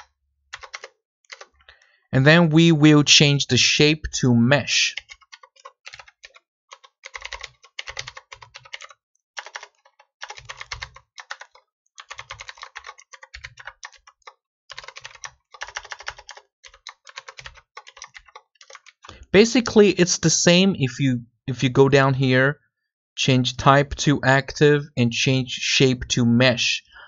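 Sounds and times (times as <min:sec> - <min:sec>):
computer keyboard typing: 0:00.0 - 0:01.6, 0:05.0 - 0:19.1.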